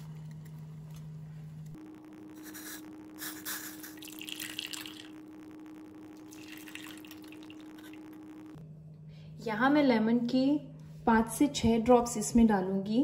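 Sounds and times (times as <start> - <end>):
faint steady hum: 0.0 - 13.0
liquid poured through strainer: 3.9 - 5.1, 6.2 - 8.0.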